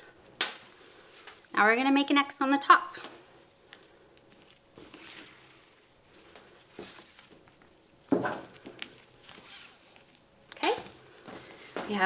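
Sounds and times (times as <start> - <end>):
ribbon laces swishing through grommets: 3.4 - 12.0.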